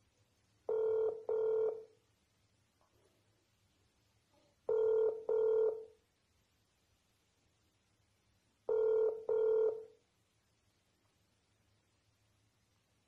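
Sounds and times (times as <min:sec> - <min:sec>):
phone ringback tone beeps: 0:00.7 - 0:01.9, 0:04.7 - 0:05.9, 0:08.7 - 0:09.9.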